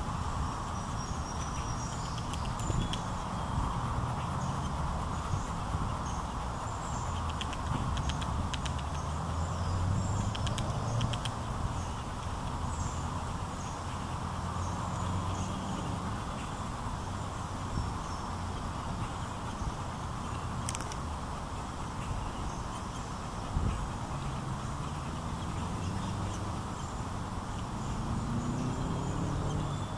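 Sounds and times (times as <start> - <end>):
quick sharp clicks: 7.3 - 9.0, 10.2 - 11.4.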